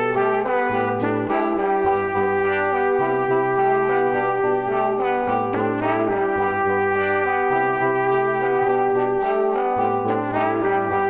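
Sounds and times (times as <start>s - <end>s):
bass line: 0.0s - 11.0s.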